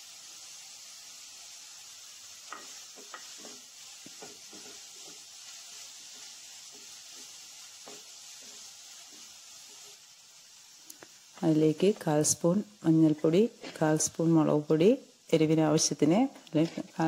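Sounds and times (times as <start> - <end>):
onions sizzling in oil: 0.0 - 17.0
wooden spatula scraping pan: 2.5 - 5.3, 13.5 - 14.1, 16.5 - 17.0.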